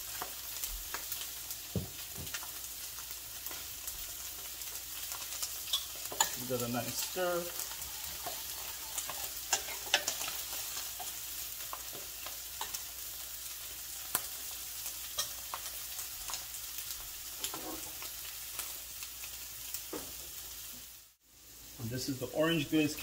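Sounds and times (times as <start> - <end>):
fish sizzling in oil: 0.0 - 23.0
spoon stirring in metal saucepan: 5.4 - 13.0.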